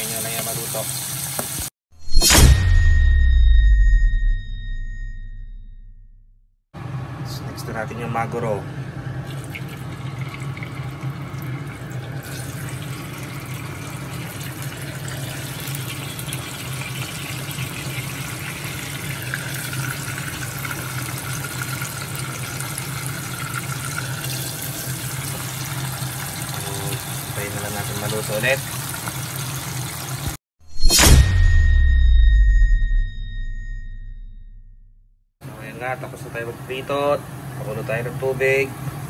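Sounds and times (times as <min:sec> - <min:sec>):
fish sizzling in hot oil: 0:00.0 - 0:01.7, 0:10.4 - 0:30.4.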